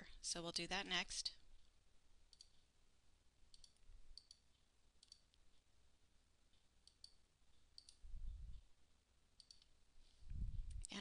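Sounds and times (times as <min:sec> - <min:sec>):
computer mouse clicks: 0:02.3 - 0:02.6, 0:03.5 - 0:05.4, 0:06.8 - 0:07.2, 0:07.8 - 0:08.0, 0:09.4 - 0:09.7.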